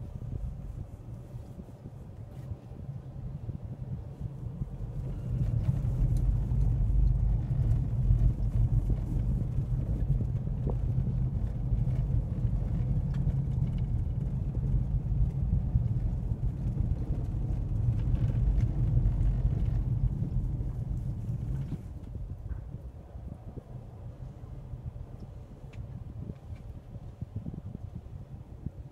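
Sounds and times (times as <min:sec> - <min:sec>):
car cabin noise: 0:00.0 - 0:23.0
car engine rumble: 0:00.0 - 0:28.9.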